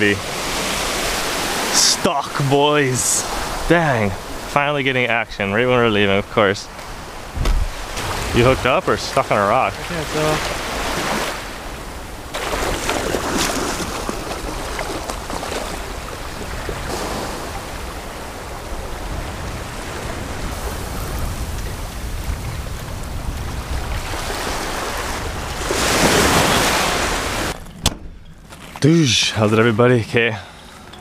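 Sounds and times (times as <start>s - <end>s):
surf washing up beach: 0.0s - 27.6s
wind rumbling on microphone: 6.8s - 28.4s.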